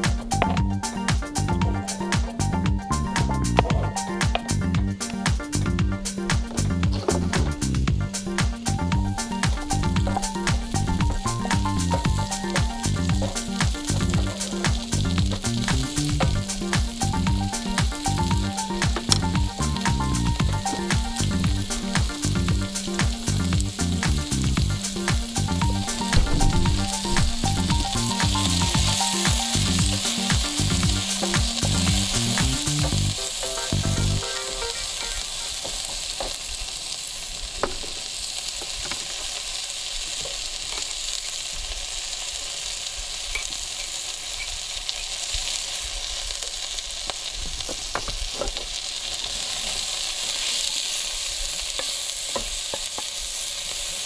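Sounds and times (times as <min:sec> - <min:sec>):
background music with bass: 0:00.0 - 0:35.4
vegetables sizzling in a pan: 0:00.0 - 0:54.0
wooden spoon stirring: 0:09.1 - 0:23.7.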